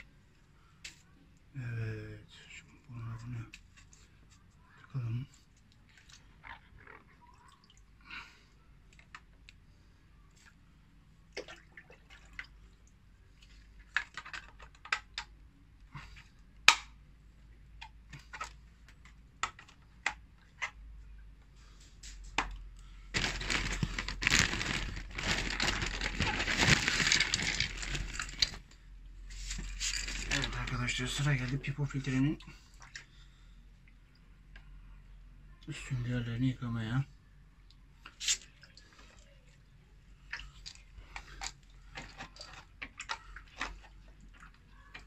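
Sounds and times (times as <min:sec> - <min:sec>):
water dripping: 0:05.6 - 0:08.0, 0:11.3 - 0:13.5.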